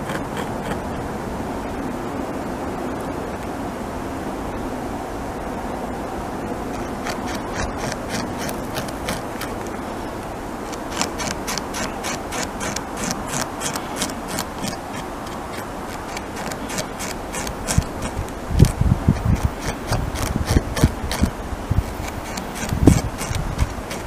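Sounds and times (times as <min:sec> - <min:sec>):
beaver gnawing wood: 0:00.0 - 0:01.0, 0:06.7 - 0:24.0.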